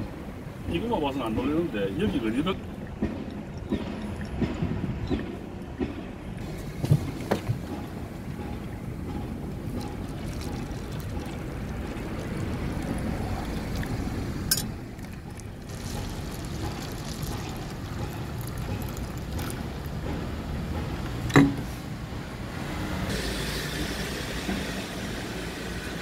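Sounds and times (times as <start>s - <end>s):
steady low rumble: 0.0s - 21.3s
coffee pouring into cups: 9.6s - 20.0s.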